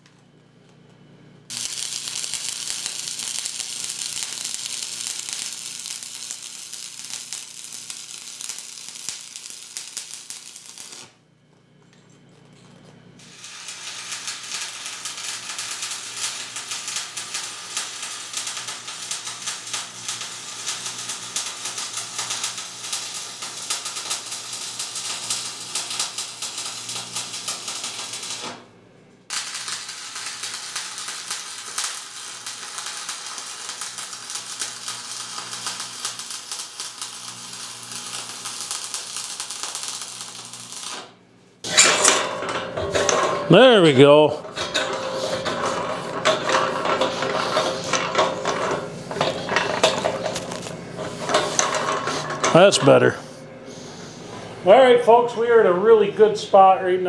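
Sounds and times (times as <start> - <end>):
welding arc crackling: 1.5 - 11.2, 13.2 - 28.6, 29.3 - 53.2.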